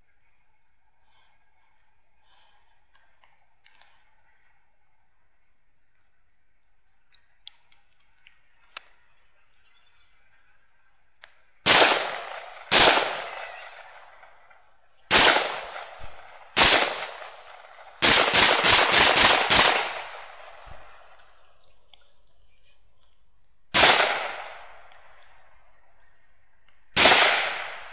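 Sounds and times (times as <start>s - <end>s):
faint clicks: 1.6s - 4.6s, 5.8s - 10.4s, 20.0s - 23.7s
rifle shots echoing: 11.6s - 21.4s, 23.7s - 25.3s, 27.0s - 27.9s.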